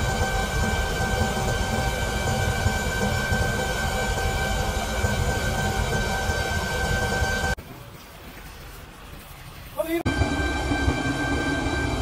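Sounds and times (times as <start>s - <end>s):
high whine: 0.0s - 7.6s, 10.1s - 12.0s.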